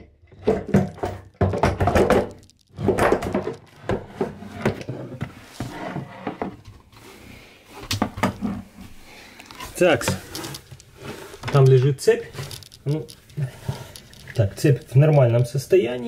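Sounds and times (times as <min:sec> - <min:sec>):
wooden panel knocks and thunks: 0:00.3 - 0:05.3.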